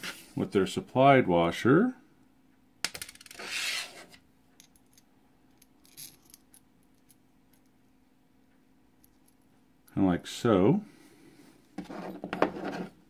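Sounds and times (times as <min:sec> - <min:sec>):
short scraping rub: 0:03.4 - 0:04.2.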